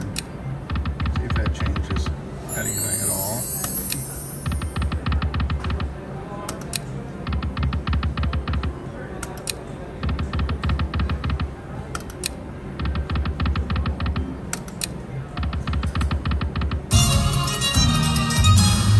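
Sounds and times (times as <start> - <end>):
slot machine reels ticking: 0.0 - 5.5.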